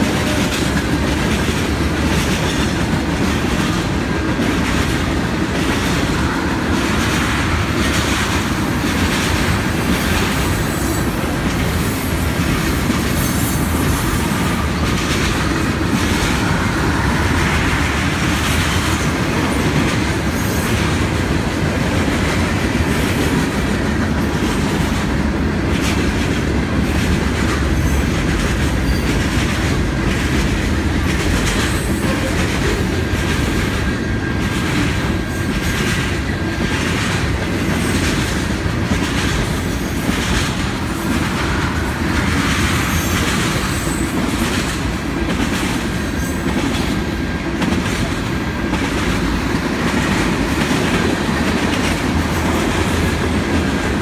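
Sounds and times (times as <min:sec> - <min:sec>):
freight train rumbling: 0:00.0 - 0:54.0.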